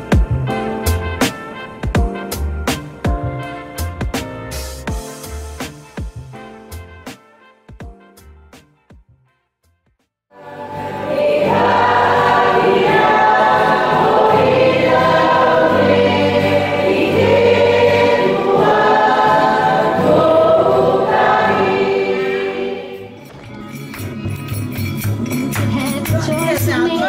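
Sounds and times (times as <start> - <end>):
congregation singing a hymn: 10.4 - 23.1.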